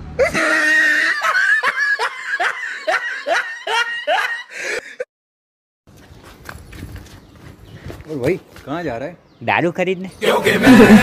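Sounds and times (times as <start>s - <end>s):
person laughing: 0.2s - 5.1s, 10.4s - 11.0s.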